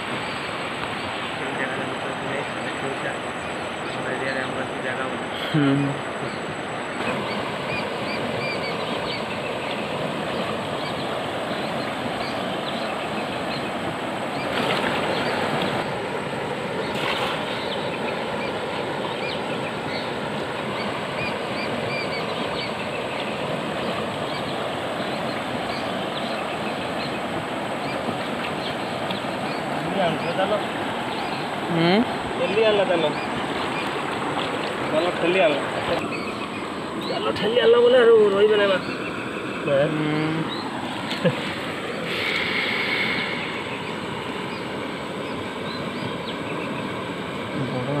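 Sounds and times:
river flowing over rocks: 6.6 - 39.6, 40.5 - 48.0
cast net splashing into water: 14.4 - 15.8, 16.9 - 17.7.

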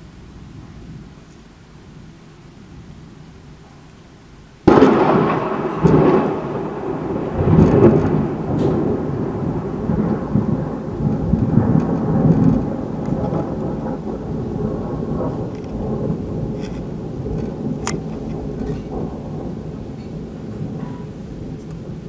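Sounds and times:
rolling thunder rumble: 0.0 - 22.0
thunder crack: 4.6 - 22.0.

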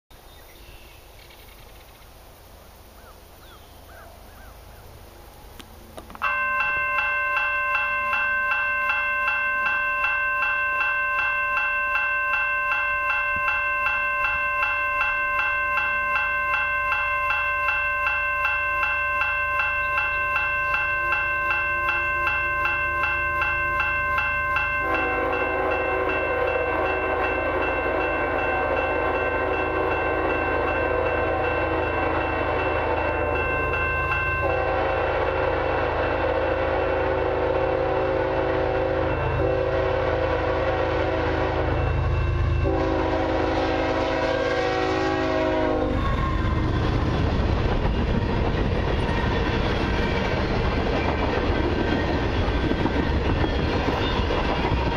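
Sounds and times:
railroad crossing bell ringing: 6.1 - 54.9
locomotive air horn: 24.8 - 33.1, 34.4 - 46.7.

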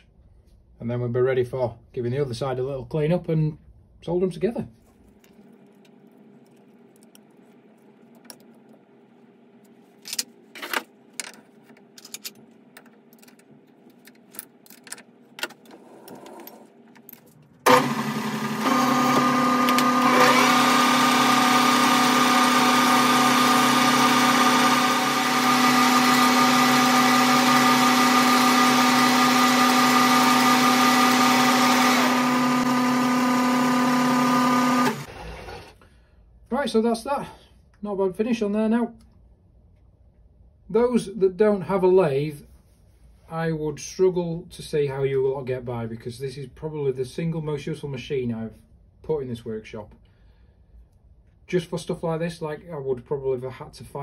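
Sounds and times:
metal handling: 10.0 - 17.6
lathe running with whine: 17.7 - 35.7.

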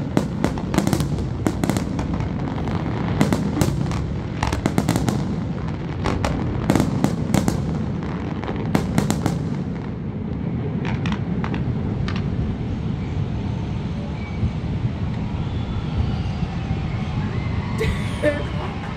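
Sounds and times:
fireworks bangs: 0.0 - 12.5.

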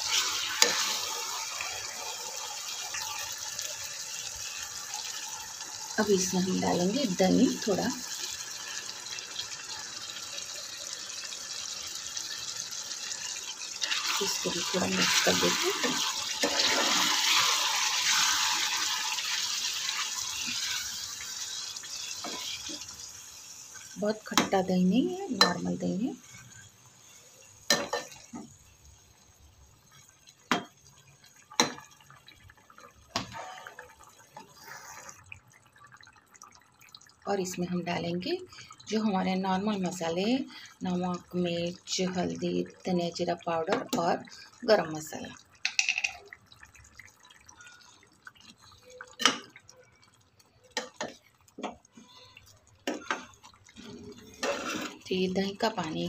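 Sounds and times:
spoon knocking against pot: 45.6 - 46.2.

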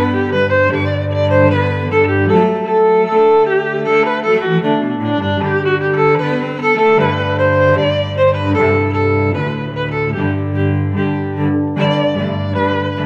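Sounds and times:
lower strings: 0.0 - 13.0
violin melody: 0.0 - 13.0.

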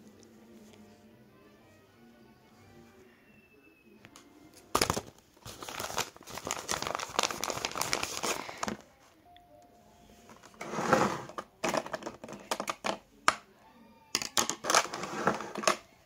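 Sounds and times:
paper crinkling and rustling: 4.7 - 8.9.

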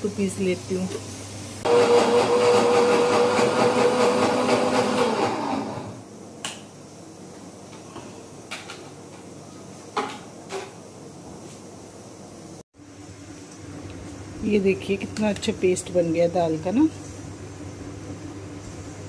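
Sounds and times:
mixer grinder motor whine: 1.6 - 6.1.

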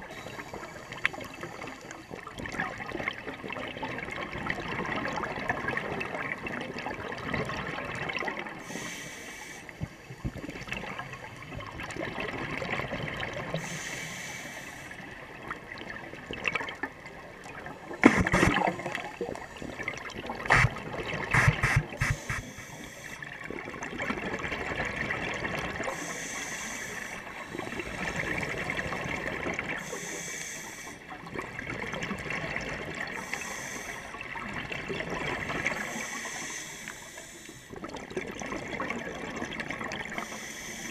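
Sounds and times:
diver breathing through regulator: 8.6 - 9.7, 13.6 - 15.0, 18.0 - 18.8, 20.5 - 20.8, 21.4 - 23.3, 25.9 - 28.6, 29.8 - 31.0, 33.2 - 34.2, 35.6 - 37.8, 40.2 - 40.9
exhaled bubbles gurgling: 15.0 - 30.0, 31.0 - 40.9
sharp knocks and clicks: 21.4 - 22.4.

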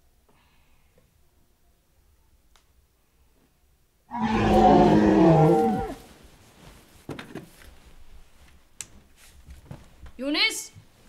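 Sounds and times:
loud deep moan: 4.1 - 6.0
faint rustles and clicks: 6.0 - 11.0.

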